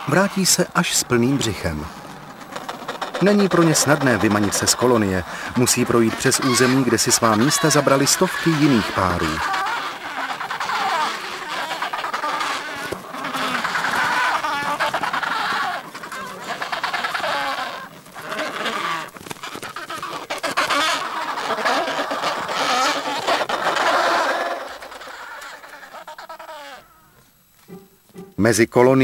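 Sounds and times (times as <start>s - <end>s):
penguins squawking and braying: 0.0s - 28.4s.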